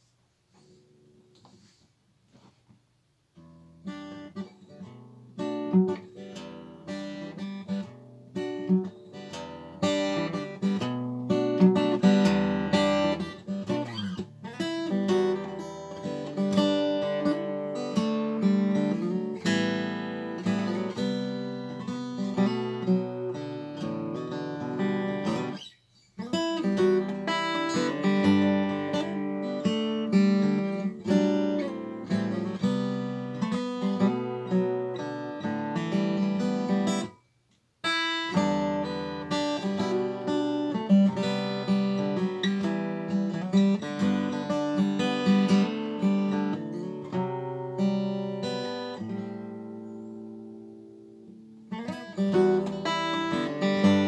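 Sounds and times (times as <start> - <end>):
acoustic guitar tune: 3.3 - 54.0.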